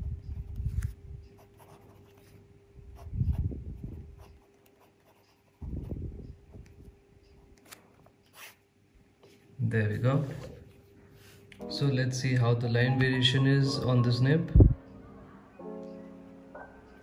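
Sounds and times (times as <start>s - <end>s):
pen writing on paper: 1.4s - 2.3s, 4.1s - 5.6s.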